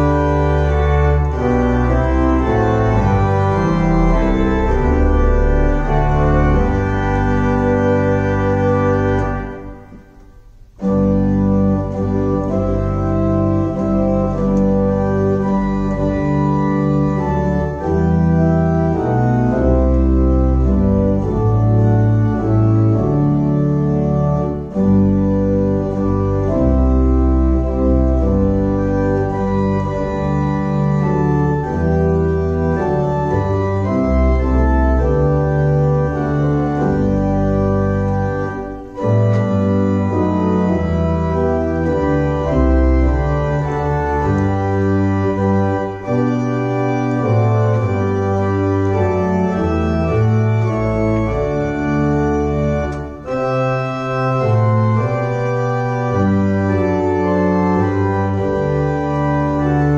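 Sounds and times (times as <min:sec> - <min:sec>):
church organ playing chords: 0:00.0 - 0:59.9.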